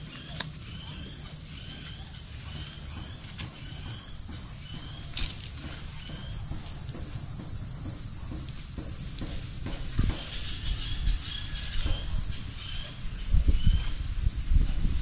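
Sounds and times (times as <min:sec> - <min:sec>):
faint chirp: 0:00.0 - 0:05.2
high-pitched insect drone: 0:00.0 - 0:15.0.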